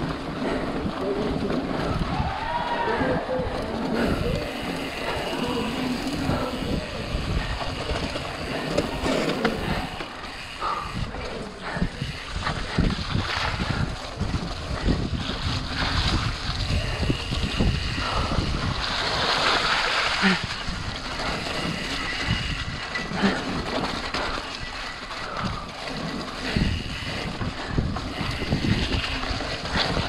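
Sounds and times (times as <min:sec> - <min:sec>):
wind noise on microphone: 0:00.0 - 0:10.0, 0:10.6 - 0:30.0
bike rattling over bumps: 0:00.0 - 0:30.0
tyres running through wet mud: 0:00.0 - 0:30.0.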